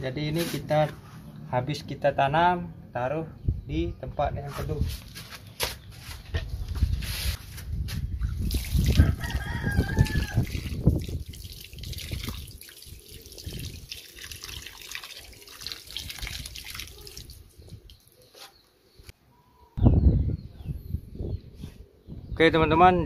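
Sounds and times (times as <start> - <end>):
water splashing onto soil: 8.2 - 18.2
rooster crowing: 9.0 - 10.5.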